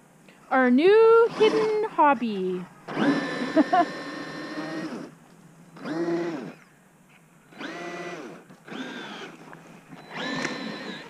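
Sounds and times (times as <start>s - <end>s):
electric motor whining: 1.1s - 1.9s, 2.8s - 5.2s, 5.8s - 6.7s, 7.5s - 11.0s.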